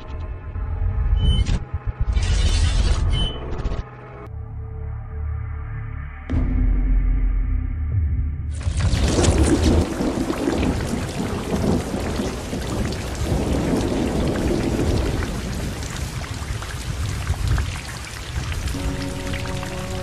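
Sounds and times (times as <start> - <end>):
steady rain: 8.6 - 20.0
thunder rumbling: 8.6 - 20.0.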